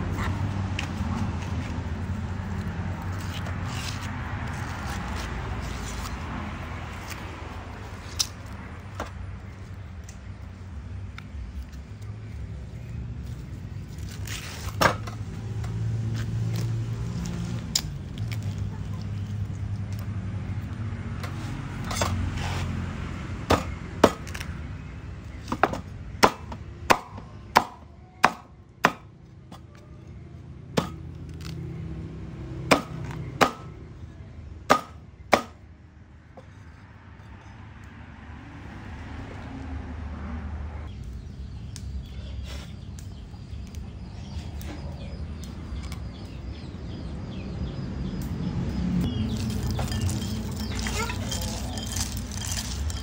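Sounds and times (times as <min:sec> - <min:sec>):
knife chopping on wooden board: 0:23.5 - 0:24.4, 0:25.5 - 0:29.1, 0:30.8 - 0:31.0, 0:32.7 - 0:33.7, 0:34.7 - 0:35.6.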